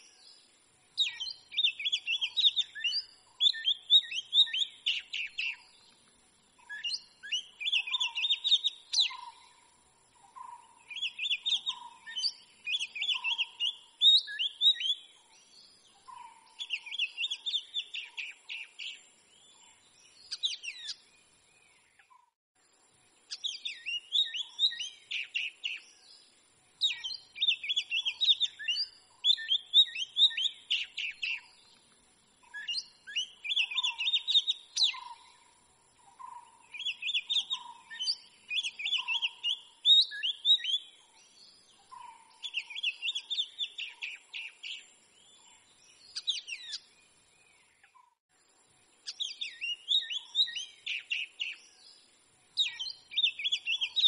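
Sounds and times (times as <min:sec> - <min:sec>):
bird singing whistled notes: 0:00.0 - 0:22.4, 0:23.2 - 0:48.2, 0:48.9 - 0:54.0.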